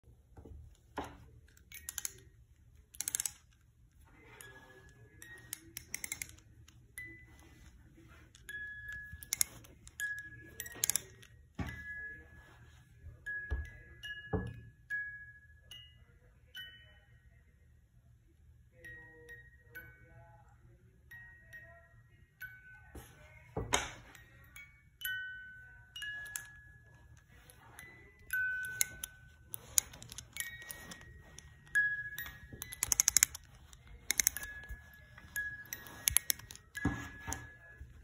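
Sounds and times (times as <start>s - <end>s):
ratcheting clicks of winding key: 1.5s - 3.6s, 5.2s - 7.1s, 8.9s - 11.3s, 26.1s - 26.5s, 28.3s - 36.8s
music box chiming notes: 4.3s - 17.3s, 21.0s - 23.1s, 24.0s - 38.0s.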